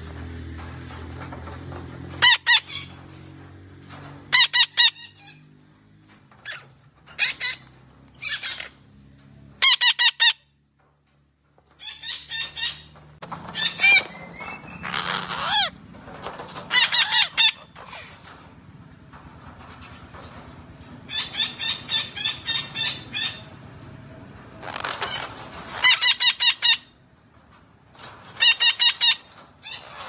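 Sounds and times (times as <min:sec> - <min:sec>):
parakeet squawking: 0:02.2 - 0:02.9, 0:04.3 - 0:05.4, 0:07.2 - 0:07.6, 0:09.6 - 0:10.4, 0:13.5 - 0:15.8, 0:16.7 - 0:18.1, 0:24.8 - 0:26.9.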